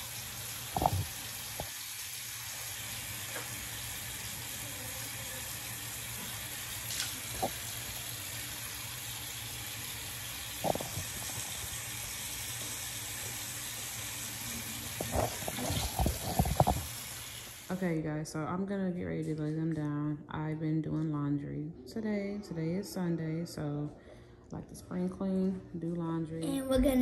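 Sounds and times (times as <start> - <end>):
tap water running into sink: 0.0 - 17.7
child spitting into sink: 0.8 - 1.2, 10.6 - 11.5, 15.0 - 17.0.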